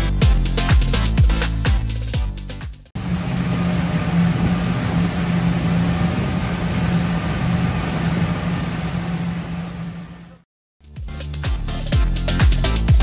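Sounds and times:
wind and water rushing: 0:03.0 - 0:10.3
boat engine drone: 0:03.0 - 0:10.5.

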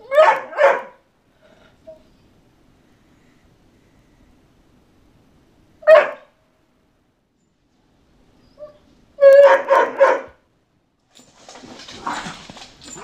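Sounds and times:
dog barking: 0:00.0 - 0:01.1, 0:05.8 - 0:06.4, 0:09.2 - 0:10.4.

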